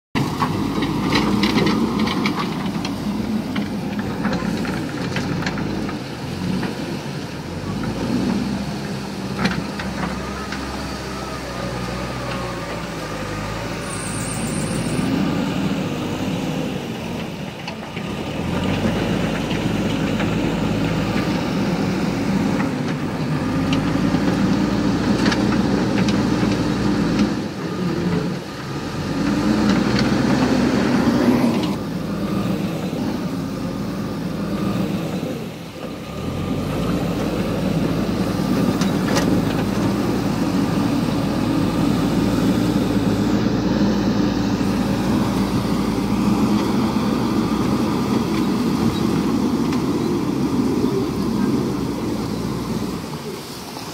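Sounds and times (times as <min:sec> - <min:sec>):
diesel engine under load: 0:00.1 - 0:53.9.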